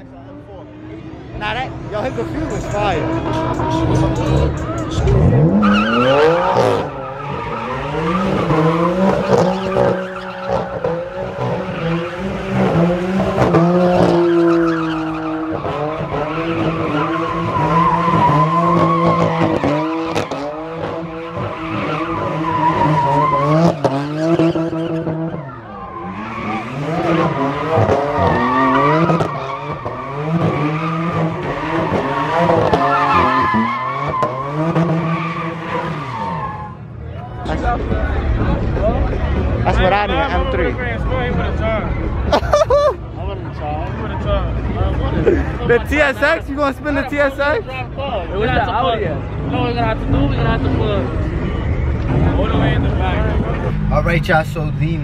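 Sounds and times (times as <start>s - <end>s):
car engine revving: 0.0s - 42.4s
tires squealing: 0.0s - 55.0s.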